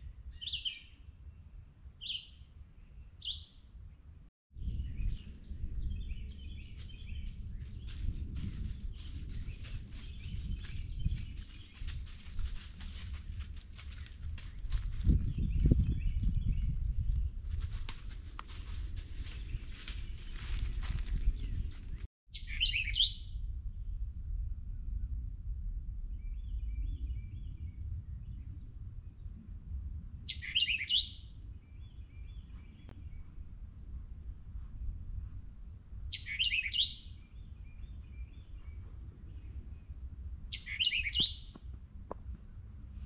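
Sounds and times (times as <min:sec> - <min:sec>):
songbird singing: 0:00.0 - 0:17.3, 0:19.2 - 0:29.3, 0:30.3 - 0:41.8
steady low rumble: 0:04.6 - 0:22.1, 0:23.2 - 0:30.3, 0:31.3 - 0:36.3, 0:37.1 - 0:43.0
twittering bird calls: 0:30.3 - 0:33.3, 0:36.1 - 0:39.9, 0:40.5 - 0:41.7.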